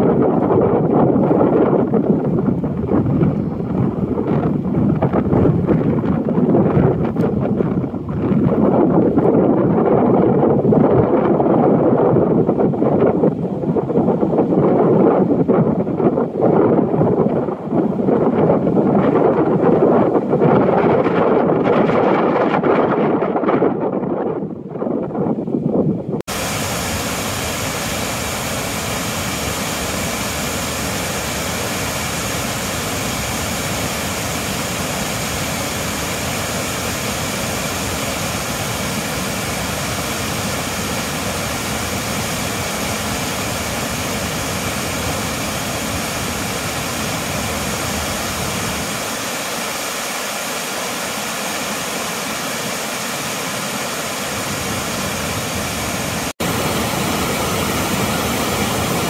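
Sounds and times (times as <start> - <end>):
waterfall rushing: 26.3 - 59.0.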